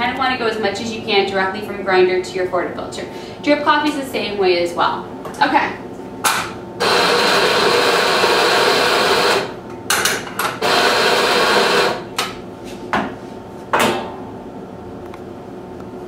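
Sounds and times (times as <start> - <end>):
coffee grinder grinding: 6.8 - 9.5, 10.6 - 12.0.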